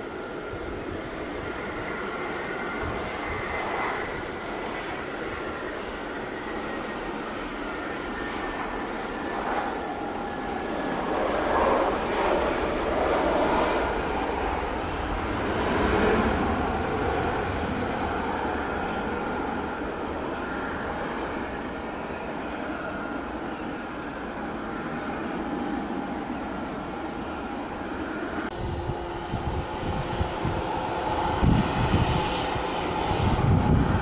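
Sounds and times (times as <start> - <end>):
jet engine roar: 0.0 - 34.0.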